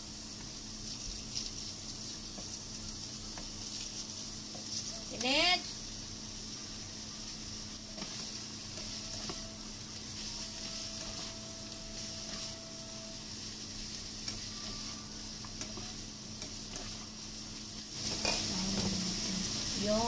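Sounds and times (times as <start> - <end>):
vegetables sizzling in a frying pan: 0.0 - 20.0
utensils clicking against pan: 13.8 - 17.2.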